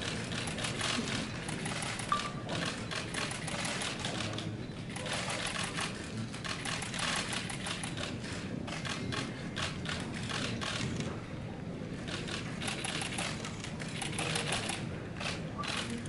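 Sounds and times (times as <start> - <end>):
camera shutters clicking: 12.1 - 16.0.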